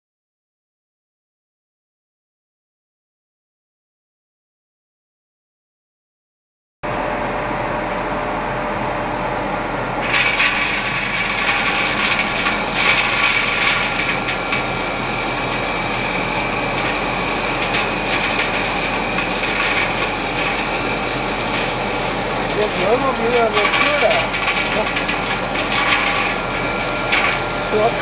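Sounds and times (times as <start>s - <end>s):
mill motor drone: 6.9s - 28.0s
high grinding noise: 10.0s - 28.0s.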